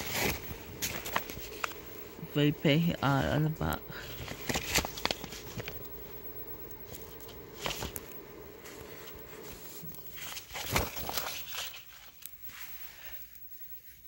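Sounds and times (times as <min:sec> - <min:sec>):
rustles and knocks of handling: 0:00.0 - 0:02.0
low steady hum: 0:00.0 - 0:14.0.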